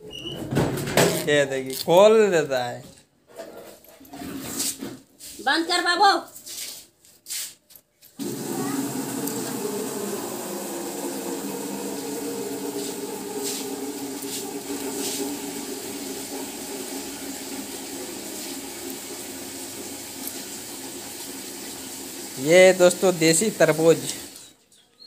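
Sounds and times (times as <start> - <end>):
running water rushing: 8.2 - 24.4.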